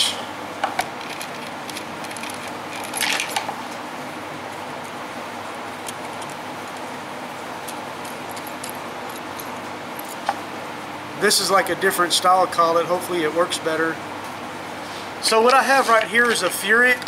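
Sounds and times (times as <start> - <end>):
steady background hum and hiss: 0.0 - 17.0
small metal parts clattering: 1.0 - 3.5.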